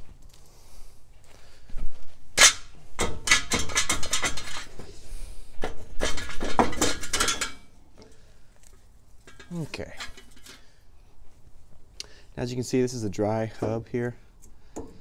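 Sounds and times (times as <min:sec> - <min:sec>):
metallic clinks and scrapes: 0:02.4 - 0:04.8, 0:05.8 - 0:10.8.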